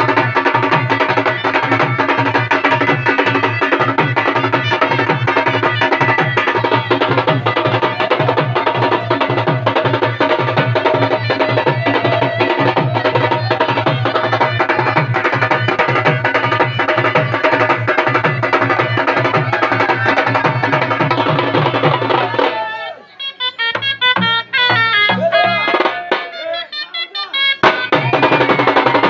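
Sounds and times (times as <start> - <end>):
drums beating fast rhythm: 0.0 - 29.0
trumpets playing melody: 22.7 - 29.0.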